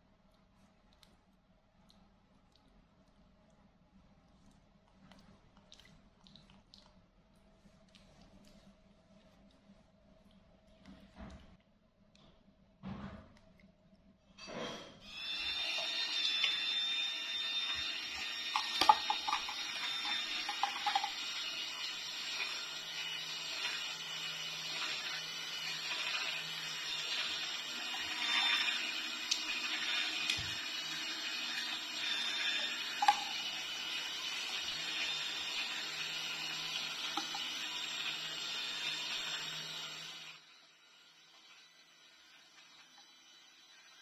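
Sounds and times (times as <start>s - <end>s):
juicer motor humming: 15.0s - 44.0s.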